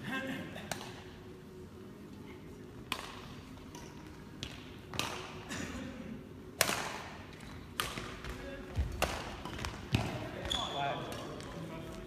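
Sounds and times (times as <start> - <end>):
rackets striking shuttlecock: 0.7 - 1.0, 2.9 - 5.4, 6.6 - 10.3.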